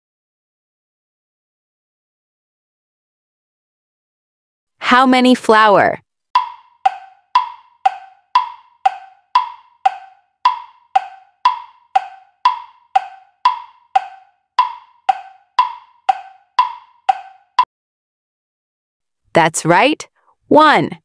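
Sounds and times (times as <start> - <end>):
tick-tock timer clicks: 6.4 - 17.7.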